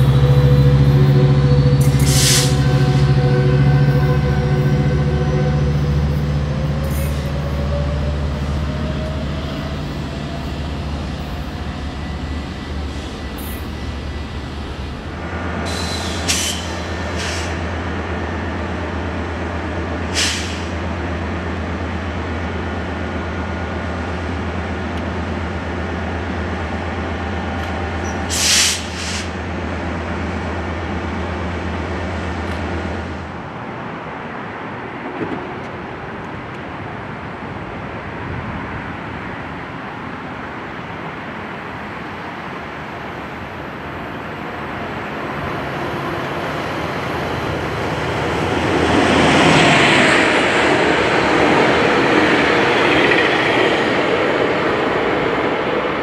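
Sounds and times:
diesel locomotive idling: 0.0s - 32.0s
approaching train: 0.0s - 56.0s
air hiss: 20.2s - 20.8s, 28.3s - 29.4s.

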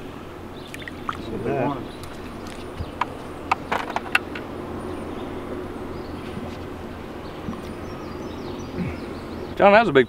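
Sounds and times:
steady low hum: 0.0s - 10.0s
sharp clicks and knocks: 2.0s - 4.5s.

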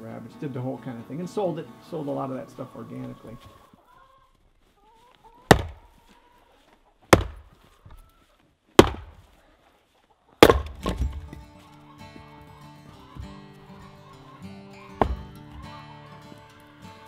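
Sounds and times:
music: 0.0s - 3.5s, 10.8s - 17.0s
axe chopping firewood: 5.4s - 6.0s, 7.1s - 7.6s, 8.8s - 9.4s, 10.4s - 11.6s, 14.8s - 15.6s.

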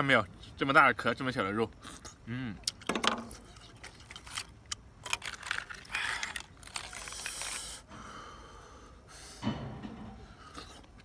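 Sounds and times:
shellfish shells clinking and scraping: 2.8s - 7.8s.

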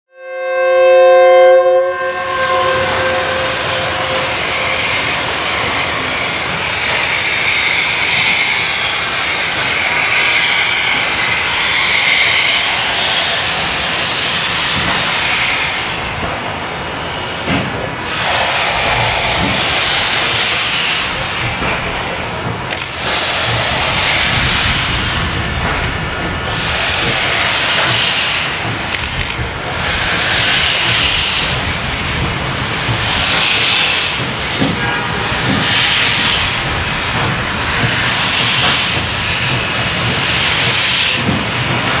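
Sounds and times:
steam locomotive whistle: 0.1s - 5.4s, 34.7s - 36.0s
steam hissing: 2.3s - 42.0s.

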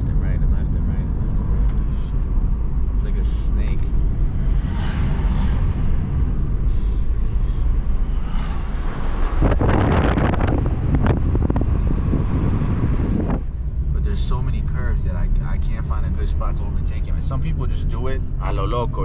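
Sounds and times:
road and engine rumble in car: 0.0s - 19.0s
wind noise on microphone: 7.6s - 13.6s.

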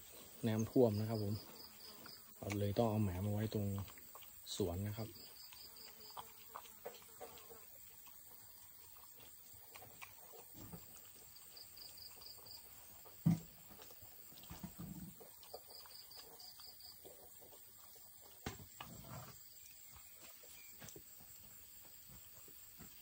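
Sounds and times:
dog chewing food: 1.6s - 4.6s, 5.2s - 18.9s.

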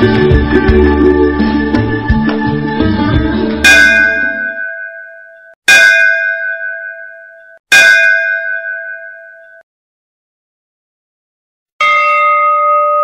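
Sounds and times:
temple bell ringing: 3.6s - 9.6s, 11.8s - 13.0s.

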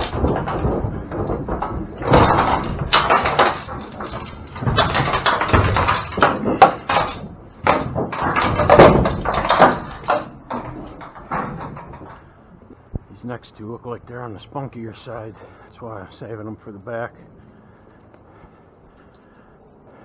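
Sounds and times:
cattle banging trailer sides: 0.0s - 13.0s
hooves clattering on metal floor: 0.0s - 13.1s.

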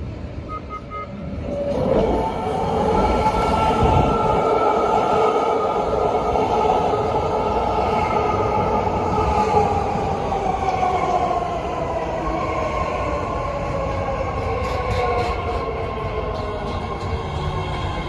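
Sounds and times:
wheels rumbling on rails: 13.0s - 18.0s.

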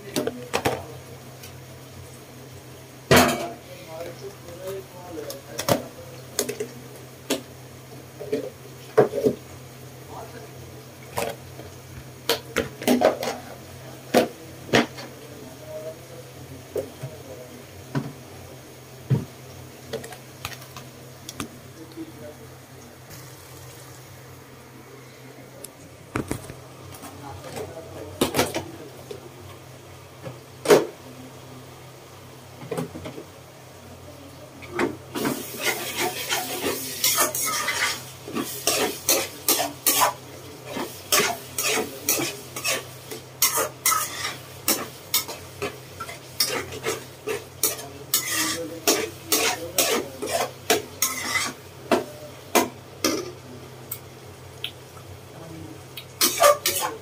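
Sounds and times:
faint sizzle: 0.0s - 57.0s
metal spoon scraping a wok: 35.2s - 51.6s, 56.2s - 57.0s.

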